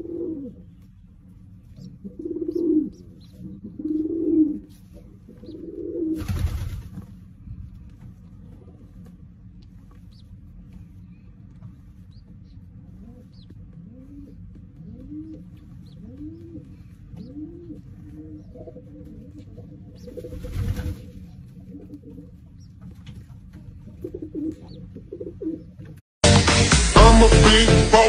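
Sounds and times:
pigeon cooing: 0.0 - 0.6, 1.8 - 6.2, 13.0 - 22.4, 24.0 - 25.7
squabs peeping: 0.3 - 25.3.

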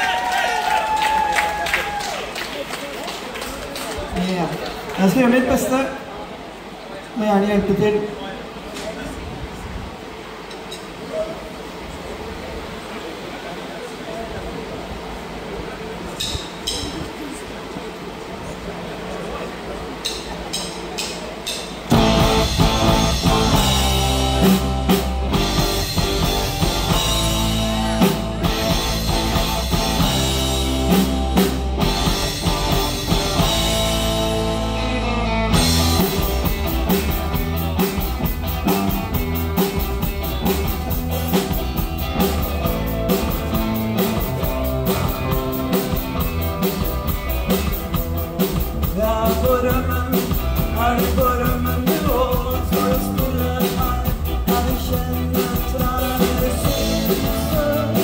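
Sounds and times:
live rock band playing: 20.0 - 58.0.

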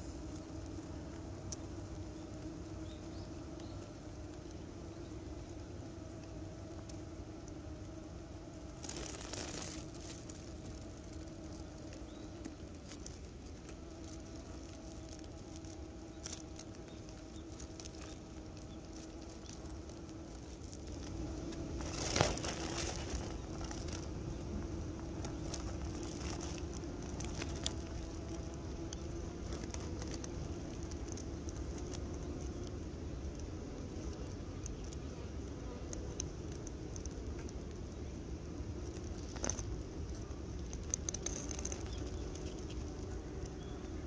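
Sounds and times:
bees humming: 0.0 - 44.0
small clicks: 38.9 - 43.6.

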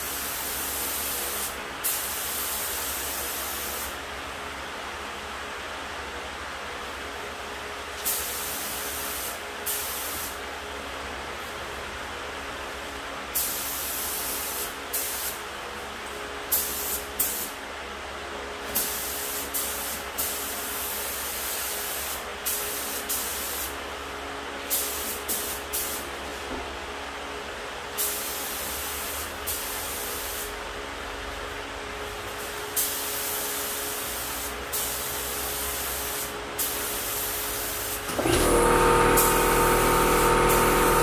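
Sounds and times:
spray gun hissing: 0.1 - 4.0, 16.5 - 17.5, 18.8 - 23.7, 24.7 - 26.0, 28.0 - 30.5, 32.4 - 41.0
steady hum: 38.3 - 41.0.

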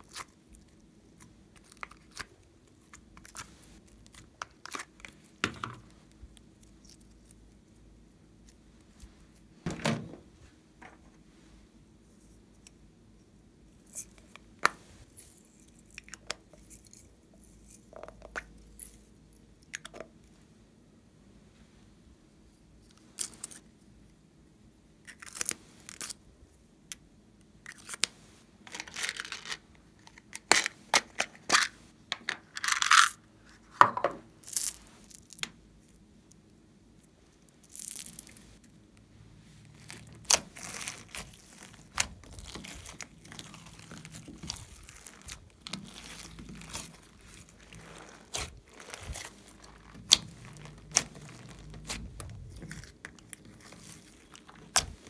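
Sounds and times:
slime squishing and crackling: 39.7 - 55.0.

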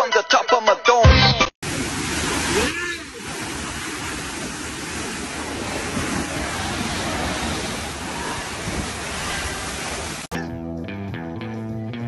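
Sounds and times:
water rushing down a slide: 1.6 - 10.3.

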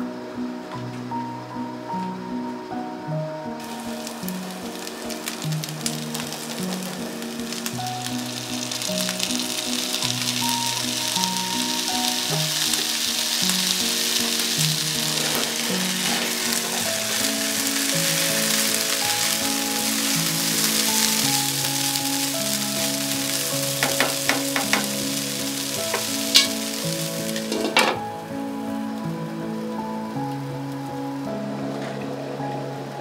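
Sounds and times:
rice sizzling in frying pan: 3.5 - 33.0
spatula tapping pan: 23.7 - 25.1, 25.8 - 26.7.

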